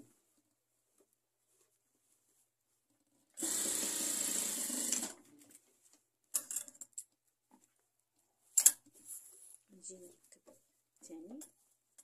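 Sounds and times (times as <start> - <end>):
fabric rustling: 0.1 - 2.9, 7.6 - 11.0
sewing machine stitching: 3.4 - 5.2.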